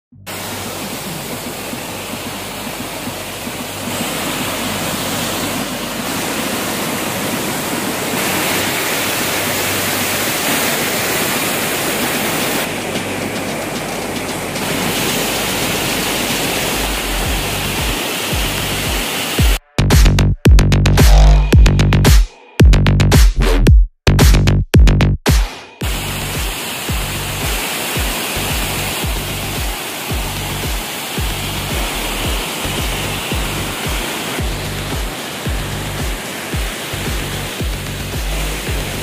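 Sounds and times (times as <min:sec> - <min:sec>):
background music with bass beat: 0:00.1 - 0:06.2, 0:12.7 - 0:15.1, 0:16.6 - 0:39.0
waterfall splashing over rocks: 0:00.3 - 0:19.6, 0:25.3 - 0:39.0.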